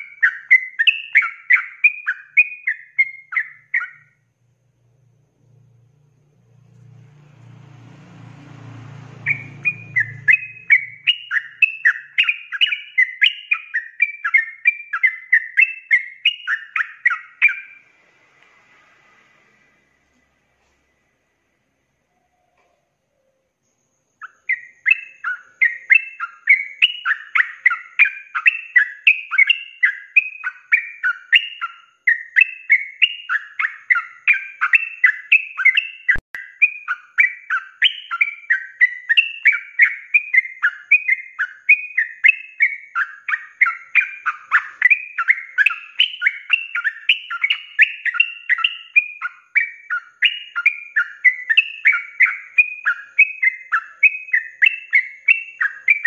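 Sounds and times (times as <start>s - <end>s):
bird singing rapid chattering notes: 0.0s - 4.2s, 9.1s - 17.8s, 23.7s - 56.0s.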